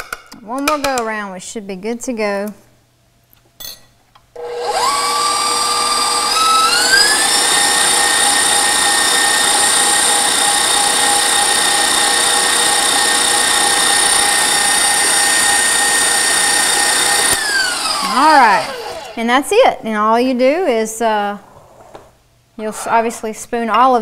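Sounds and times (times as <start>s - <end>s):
electric mixer motor whining: 4.4s - 19.3s.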